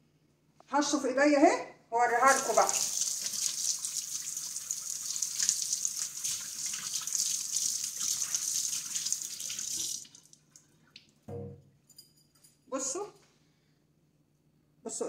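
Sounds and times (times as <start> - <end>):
hands rinsing under water: 2.1 - 10.4.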